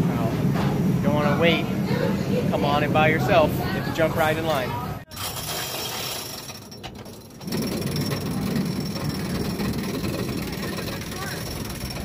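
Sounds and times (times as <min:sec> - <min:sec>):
roller coaster rumble: 0:00.0 - 0:12.0
lift chain mechanical clatter: 0:05.1 - 0:12.0.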